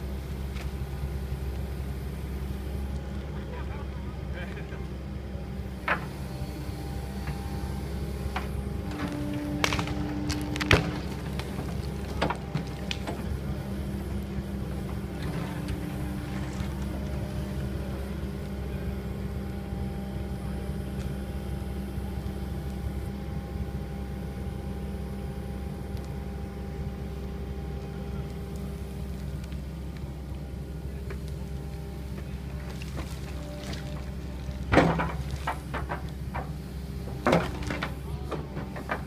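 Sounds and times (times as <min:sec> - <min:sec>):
excavator diesel engine running: 0:00.0 - 0:39.0
bucket knocking on roots: 0:08.9 - 0:13.2.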